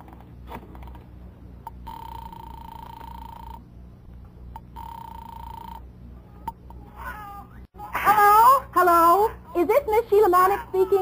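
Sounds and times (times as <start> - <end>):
telephone ringing tone: 1.7 - 3.7, 4.6 - 5.9.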